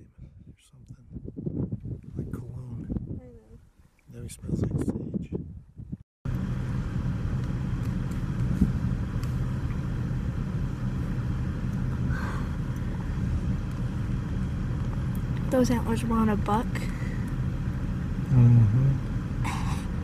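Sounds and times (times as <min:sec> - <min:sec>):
vehicle engine idling: 0:06.3 - 0:20.0.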